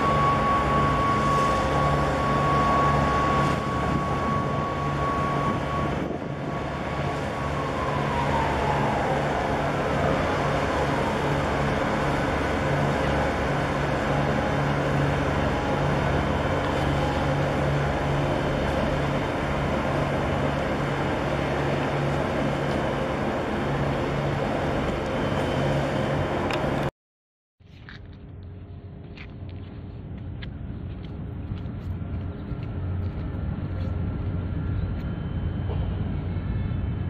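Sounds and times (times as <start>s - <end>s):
boat engine rumbling: 0.0s - 26.9s.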